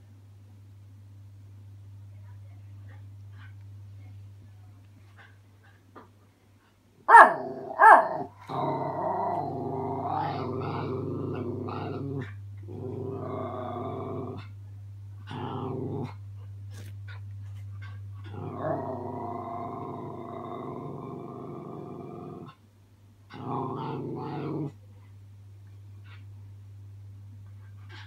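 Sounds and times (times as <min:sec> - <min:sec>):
puppy barking: 0:07.1 - 0:08.3
puppy growling: 0:07.1 - 0:14.6, 0:15.2 - 0:22.6, 0:23.3 - 0:24.8.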